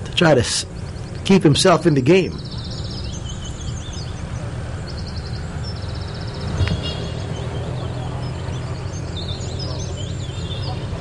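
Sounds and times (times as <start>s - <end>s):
birds chirping and trilling: 0.0s - 11.0s
golf club striking ball: 6.4s - 7.1s.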